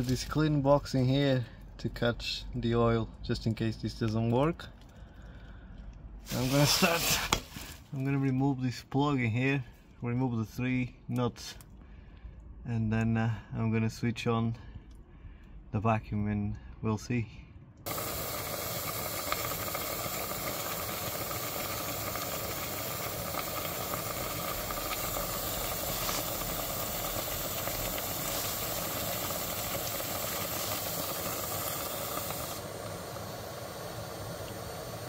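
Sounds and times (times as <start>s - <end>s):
vacuum cleaner running: 6.3s - 7.7s, 17.9s - 35.0s.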